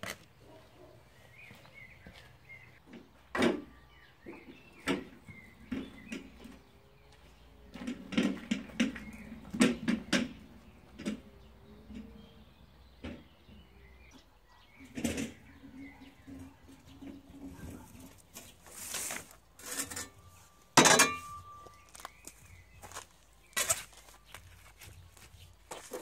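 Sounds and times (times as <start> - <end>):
wheelbarrow rattling over paving: 7.4 - 12.5, 14.7 - 26.0.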